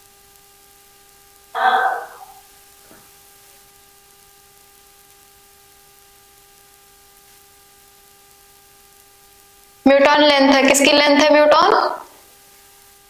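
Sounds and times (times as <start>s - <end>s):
faint electrical hum: 0.0s - 13.0s
steady hiss: 0.0s - 13.0s.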